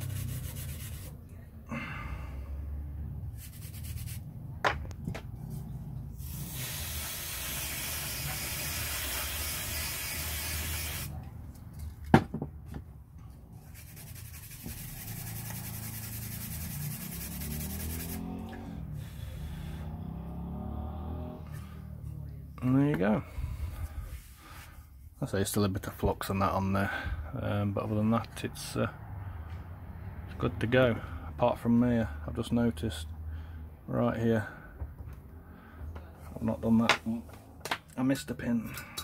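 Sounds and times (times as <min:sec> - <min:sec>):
toothbrush scrubbing: 0:00.0 - 0:01.2, 0:03.4 - 0:04.3, 0:13.7 - 0:18.2
aerosol spray hissing: 0:06.2 - 0:11.1.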